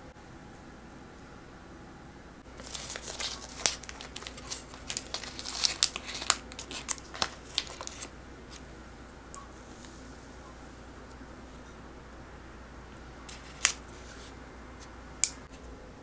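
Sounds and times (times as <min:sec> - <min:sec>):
paper crinkling and tearing: 0:02.5 - 0:08.6, 0:13.3 - 0:14.3.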